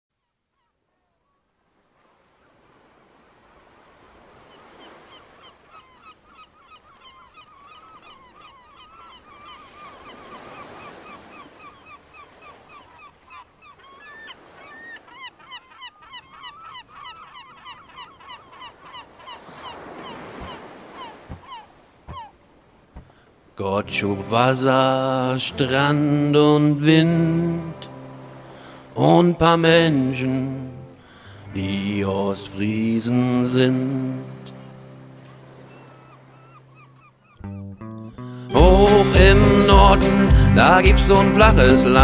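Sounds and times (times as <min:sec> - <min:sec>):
background rush: 0:38.5 - 0:42.0.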